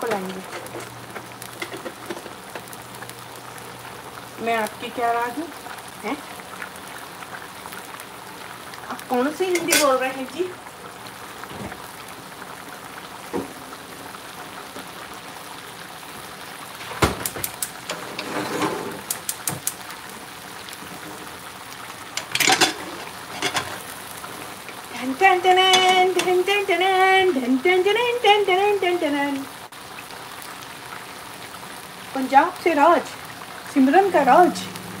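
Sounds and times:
curry bubbling in a frying pan: 0.0s - 18.3s, 18.9s - 35.0s
metal pot clanks and knocks: 22.2s - 23.8s.

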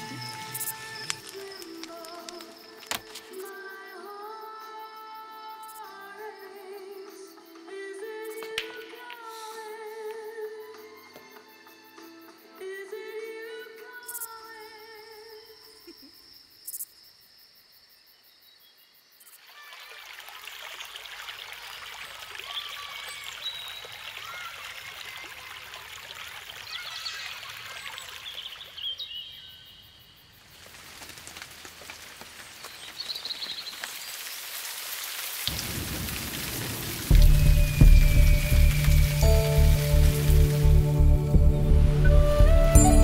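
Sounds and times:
steady rain falling: 0.0s - 4.1s, 30.4s - 43.0s
birds chirping: 37.1s - 43.0s.

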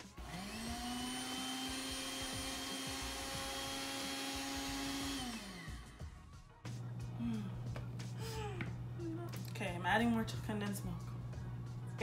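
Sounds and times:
blender motor running: 0.0s - 9.0s.

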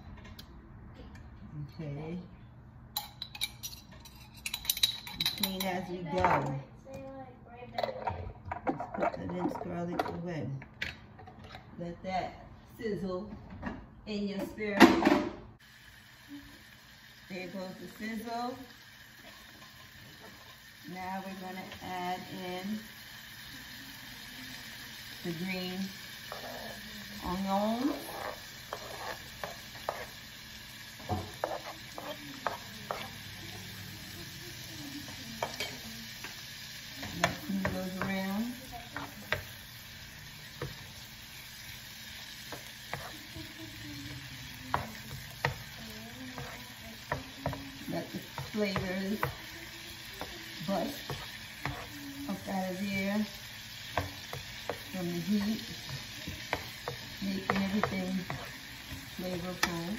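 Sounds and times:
onions sizzling in oil: 15.6s - 59.9s
spatula tapping and scraping pan: 27.3s - 30.2s, 30.9s - 33.3s, 35.0s - 36.4s, 37.0s - 39.6s, 42.4s - 43.4s, 44.7s - 59.9s.

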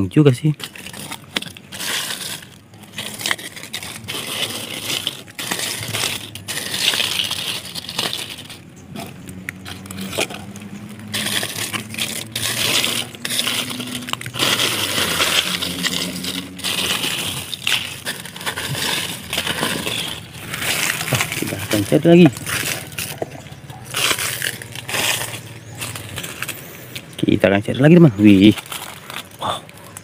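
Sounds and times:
dry leaves crunching: 0.0s - 30.0s
hand raking through soil: 0.0s - 30.0s.

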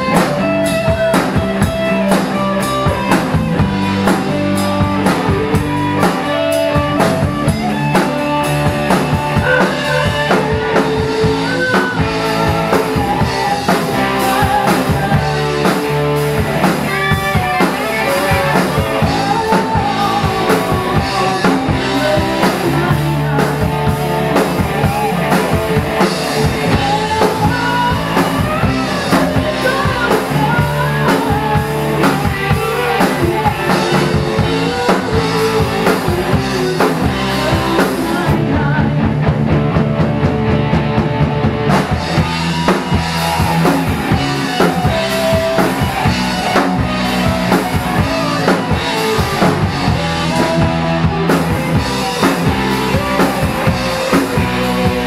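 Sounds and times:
rock band playing: 0.0s - 55.0s
woman singing lead: 8.9s - 39.4s, 42.1s - 55.0s.

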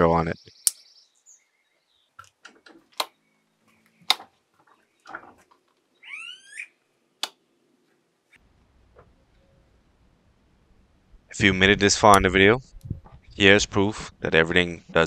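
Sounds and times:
rocker switches clicking: 2.2s - 3.2s, 4.0s - 4.3s, 7.2s - 7.4s.

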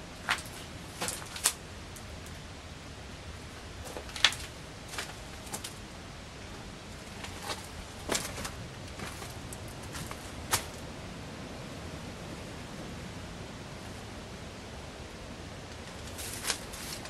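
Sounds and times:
footsteps on gritty floor: 7.2s - 10.8s.

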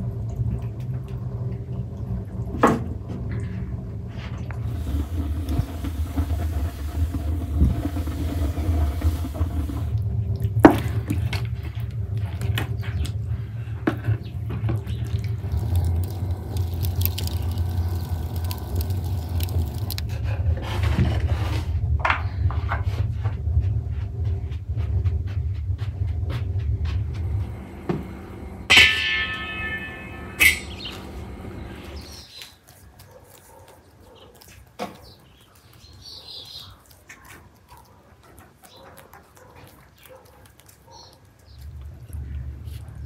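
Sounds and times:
steady low rumble: 0.0s - 32.2s, 41.6s - 43.0s.

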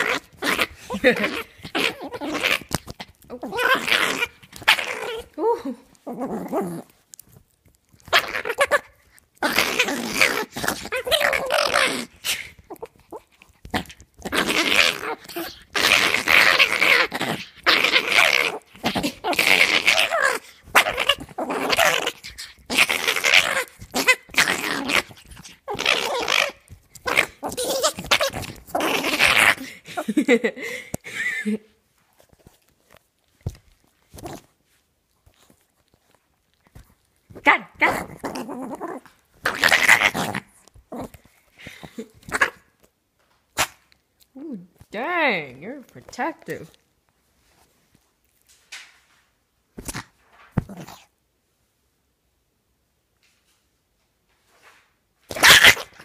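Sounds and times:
small dog growling: 0.0s - 7.0s, 8.0s - 31.3s, 32.4s - 34.5s, 35.2s - 42.7s, 49.9s - 51.1s.

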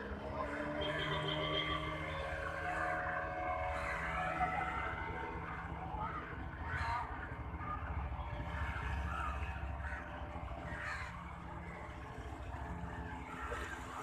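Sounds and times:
crows cawing: 9.2s - 11.2s.

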